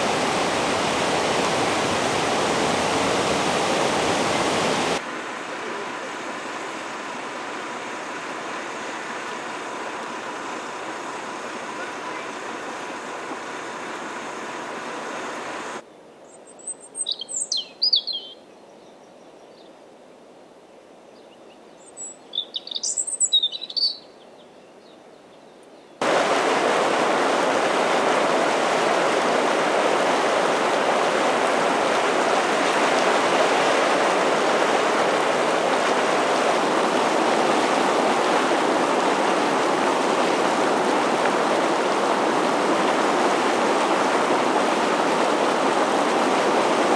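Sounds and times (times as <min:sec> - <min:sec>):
hot spring boiling water rushing: 0:00.0 - 0:15.8, 0:26.0 - 0:46.9
bird chirping: 0:16.2 - 0:19.7, 0:21.2 - 0:26.0
bubbling mud pool: 0:26.0 - 0:46.9.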